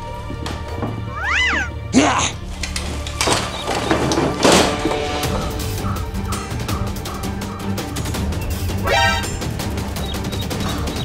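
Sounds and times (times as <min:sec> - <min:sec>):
music with steady beat and bass: 0:04.8 - 0:11.0.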